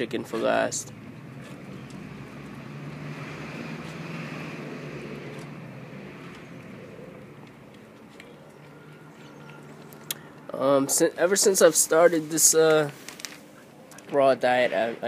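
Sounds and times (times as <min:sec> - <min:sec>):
passing vehicle rushing: 0:00.8 - 0:07.6.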